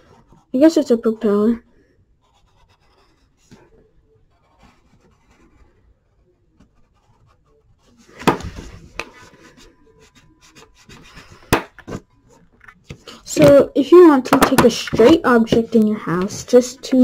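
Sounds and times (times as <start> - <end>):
pencil scratching on paper: 0.0 - 1.2, 2.2 - 11.6.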